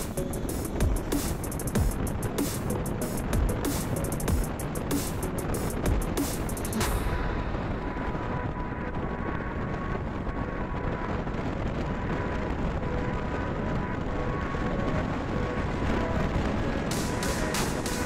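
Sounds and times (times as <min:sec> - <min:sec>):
road noise: 0:00.0 - 0:18.0
wind rumble on microphone: 0:00.0 - 0:18.0.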